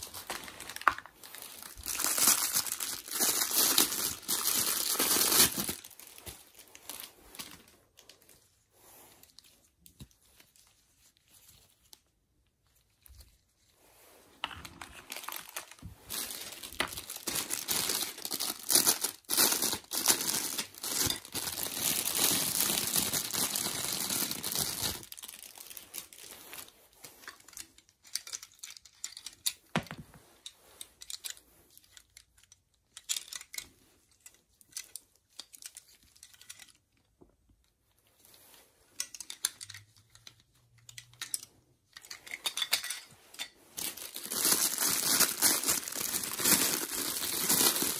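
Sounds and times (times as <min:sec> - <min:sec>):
plastic bag crinkling: 0:00.0 - 0:08.3, 0:14.4 - 0:27.3, 0:43.8 - 0:47.9.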